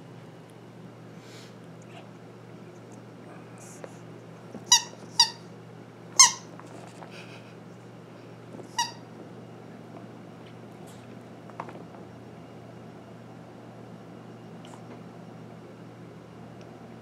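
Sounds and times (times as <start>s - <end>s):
rubber squeaky toy squeaking: 4.7s - 5.4s, 6.2s - 6.5s, 8.7s - 9.0s.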